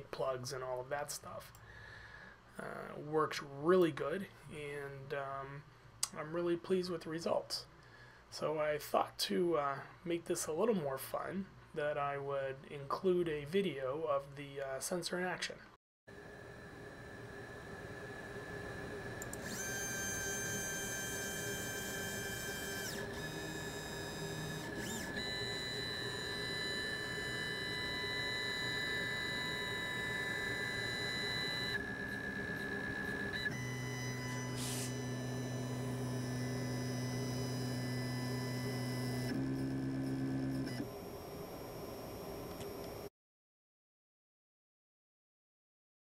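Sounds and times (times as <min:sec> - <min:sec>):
stepper motor whine: 0:16.1 - 0:43.1.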